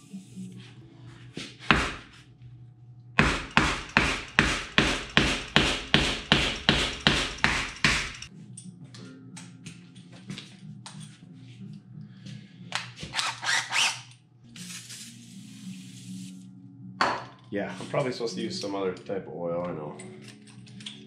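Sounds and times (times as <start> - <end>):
hammer pounding wood block: 1.7 - 2.0, 3.2 - 8.3.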